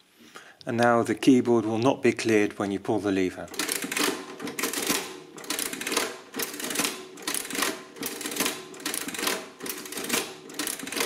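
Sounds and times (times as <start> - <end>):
adding machine lever ratcheting: 3.5 - 11.0.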